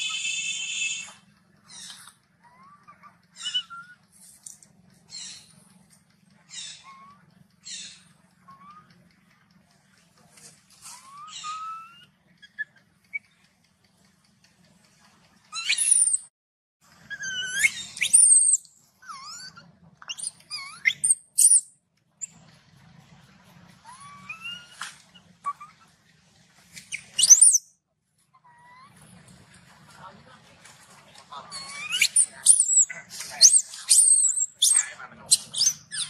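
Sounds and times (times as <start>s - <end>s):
macaque shrill screams: 0.0s - 2.0s, 2.6s - 4.0s, 10.9s - 12.6s, 17.1s - 21.6s, 23.8s - 24.9s, 25.5s - 25.8s, 27.2s - 27.6s, 31.5s - 36.0s
macaque squeaks and coos: 0.0s - 4.2s, 5.1s - 5.6s, 6.4s - 9.0s, 10.8s - 13.4s, 15.5s - 16.2s, 17.0s - 21.6s, 23.8s - 25.9s, 26.8s - 27.6s, 28.3s - 29.1s, 31.4s - 36.0s.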